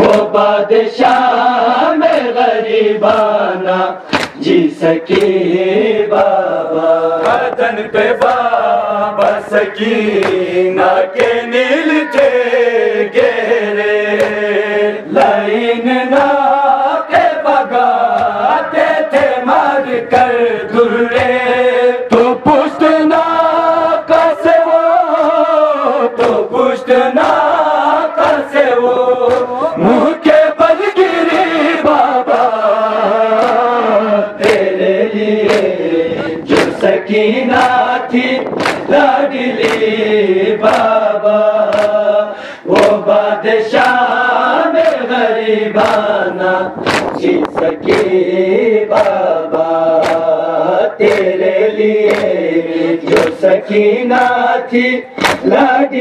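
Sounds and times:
hands slapping on chests: 0.0 - 0.3, 4.0 - 4.5, 5.1 - 5.4, 7.2 - 8.6, 10.1 - 10.5, 14.1 - 14.5, 18.1 - 20.4, 26.2 - 26.4, 28.2 - 28.6, 29.2 - 29.5, 33.4 - 33.7, 34.4 - 34.8, 35.4 - 35.8, 36.5 - 36.9, 38.4 - 40.0, 40.6 - 41.0, 41.6 - 42.0, 42.7 - 43.0, 43.7 - 44.0, 44.7 - 45.1, 45.8 - 46.1, 46.8 - 48.2, 48.9 - 50.4, 51.0 - 51.4, 52.0 - 53.5, 55.2 - 55.7
lead reciter chanting: 0.0 - 56.0
men chanting in unison: 0.0 - 56.0.

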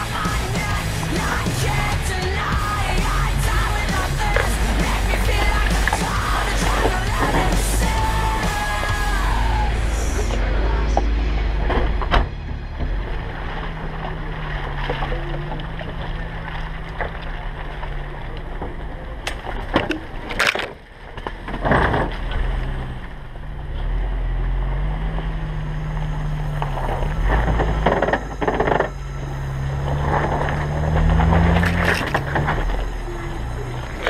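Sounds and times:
off-road vehicle engine running: 0.0 - 34.0
knocks and scrapes of vehicle body: 11.0 - 23.9, 26.0 - 33.0.

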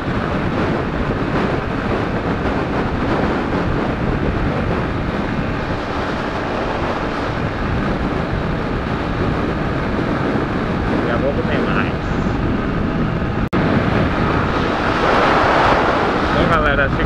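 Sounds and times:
road noise: 0.0 - 17.0
wind buffeting microphone: 0.0 - 17.0.

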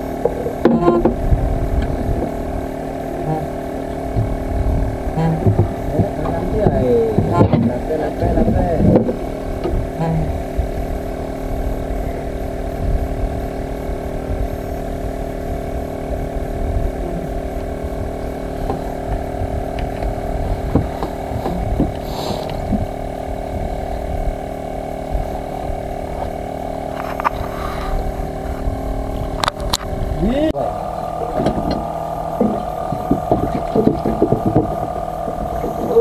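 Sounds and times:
boat engine droning: 0.0 - 36.0.

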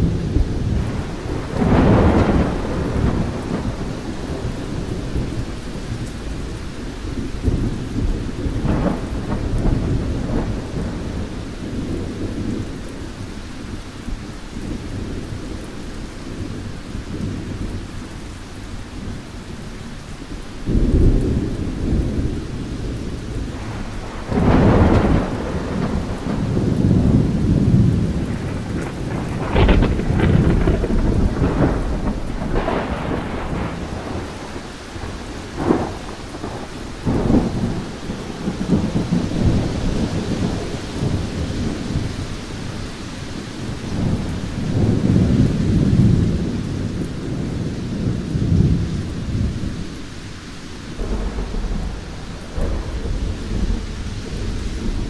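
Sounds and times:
cracks of thunder: 0.0 - 6.1, 7.4 - 12.7, 20.7 - 42.6, 43.3 - 49.9, 50.9 - 55.0
low rolling thunder: 0.0 - 55.0
steady rain: 0.0 - 55.0.

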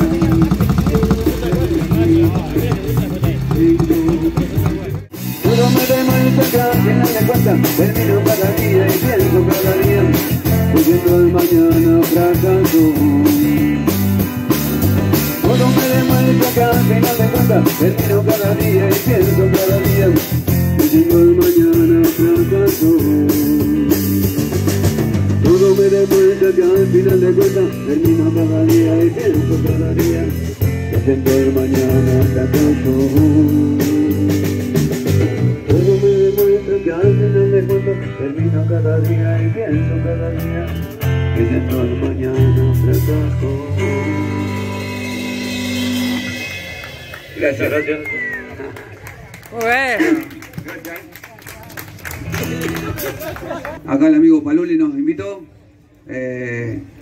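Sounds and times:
drum kit beat: 0.0 - 37.9, 40.4 - 47.7
guitar: 0.0 - 53.9.

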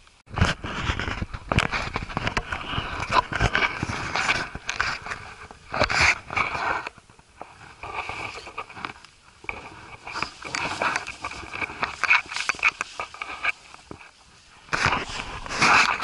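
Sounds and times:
clothing rustle: 0.4 - 16.0.

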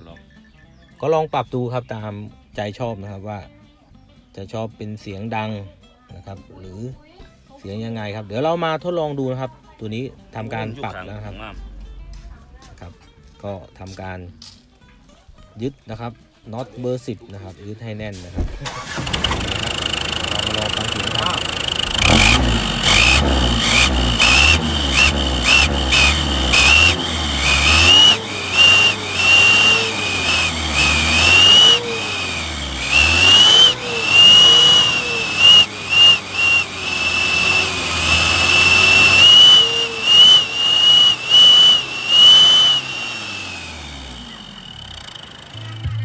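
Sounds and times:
truck engine revving: 18.6 - 46.0
exhaust whistle: 18.7 - 46.0.

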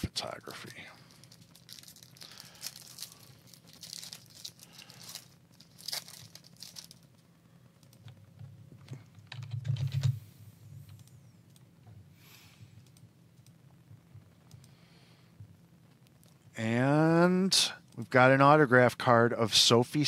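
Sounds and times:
rustling and crinkling: 1.0 - 7.3.

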